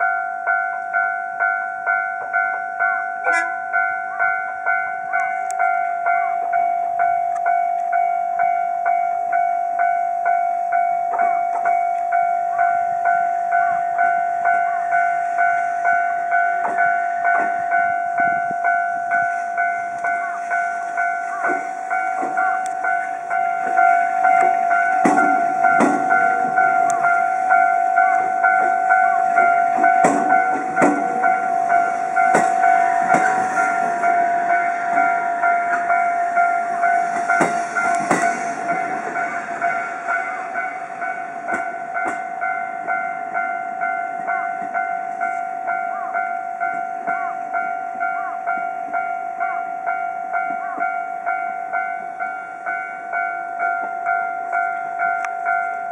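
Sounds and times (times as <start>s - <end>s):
level-crossing alarm ringing: 0.0s - 55.9s
train wheels clacking on rail joints: 16.6s - 45.5s.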